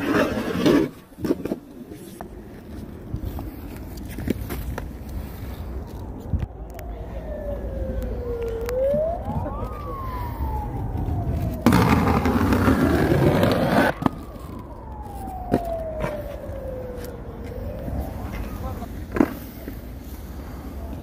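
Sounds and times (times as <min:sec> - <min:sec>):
inline skate grinding on concrete: 0:00.0 - 0:02.2, 0:11.6 - 0:14.6
emergency vehicle siren wailing: 0:05.2 - 0:19.0
skate wheels clacking on pavement: 0:11.3 - 0:16.3, 0:18.3 - 0:19.9.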